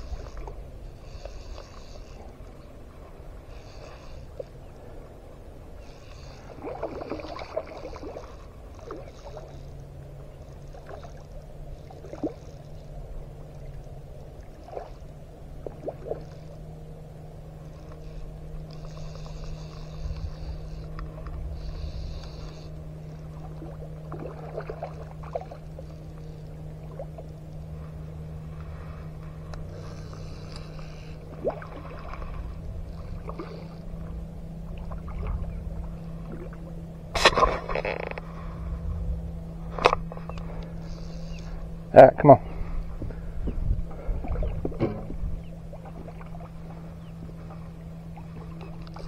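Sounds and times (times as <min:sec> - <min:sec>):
steady low hum: 0:00.0 - 0:49.0
fish splashing in water: 0:06.2 - 0:09.6, 0:23.3 - 0:27.3, 0:29.8 - 0:33.9.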